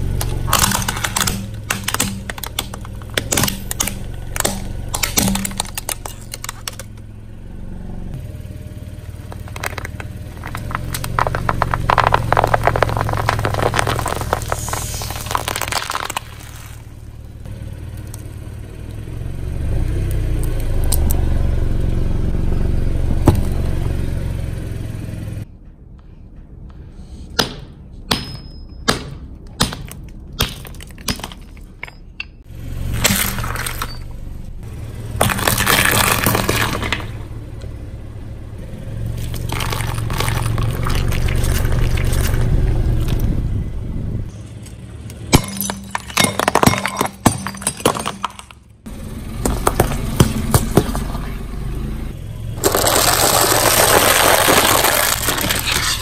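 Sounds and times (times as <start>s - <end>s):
low tyre rumble: 0.0s - 27.0s, 29.2s - 56.0s
plastic toy cracking and snapping: 0.2s - 6.9s
dense crackling of crushed sheet: 9.2s - 17.1s, 52.6s - 56.0s.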